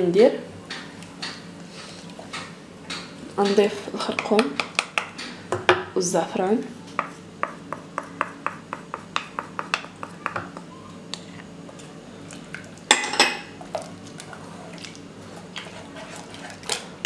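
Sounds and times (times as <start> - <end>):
wooden spoon tapping a plate: 7.0 - 10.7.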